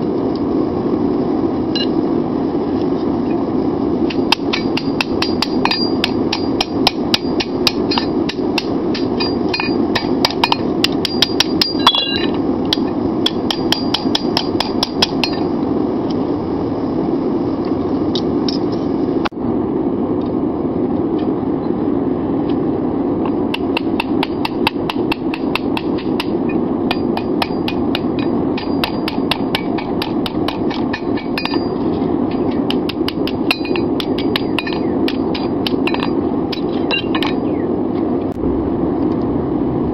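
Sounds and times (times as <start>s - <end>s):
steady low rush: 0.0s - 39.9s
hammer ringing on anvil: 4.3s - 12.3s, 13.3s - 15.5s, 23.6s - 37.6s.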